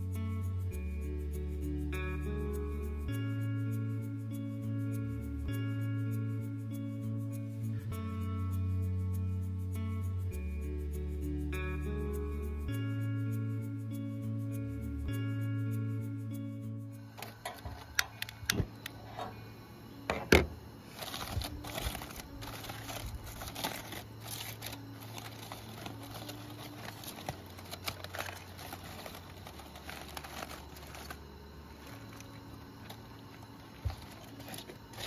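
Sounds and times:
aluminium foil crinkling: 20.9 - 35.0.

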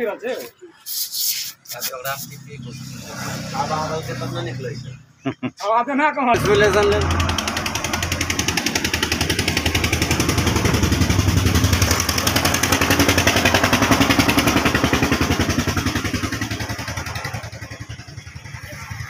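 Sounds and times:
machine running with fast pulse: 6.4 - 19.0.

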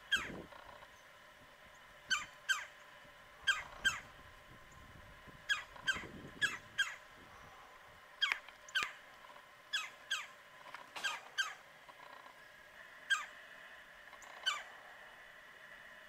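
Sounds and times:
woodpecker calling: 0.0 - 1.1, 1.7 - 4.8, 5.4 - 7.1, 8.2 - 14.9.

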